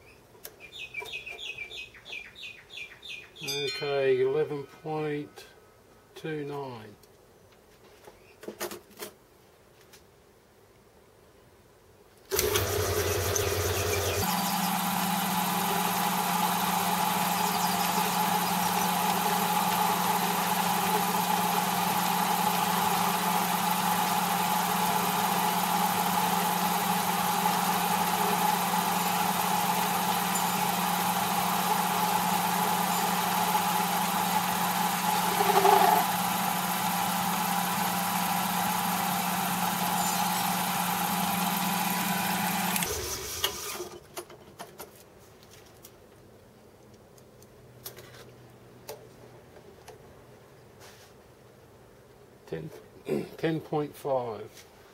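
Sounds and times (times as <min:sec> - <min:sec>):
metal lathe running: 0:12.3 - 0:43.2.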